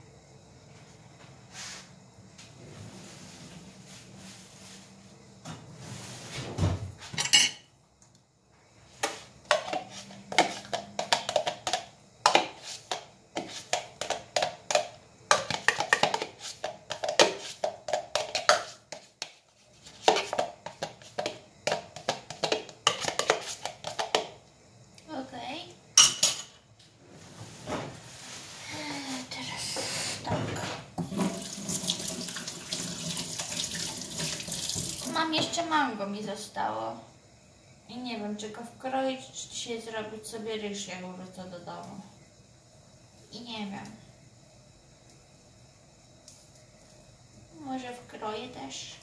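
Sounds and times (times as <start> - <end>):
cutlery clinking on dishes: 7.2 - 7.7, 26.0 - 26.6.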